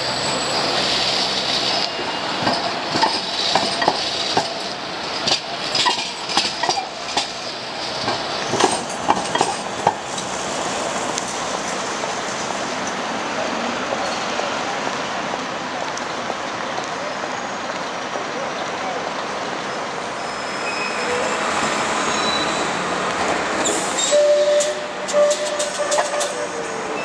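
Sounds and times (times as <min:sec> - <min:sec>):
tram rolling hiss: 0:00.0 - 0:27.0
wheels clicking over rail joints: 0:01.5 - 0:11.8, 0:23.1 - 0:27.0.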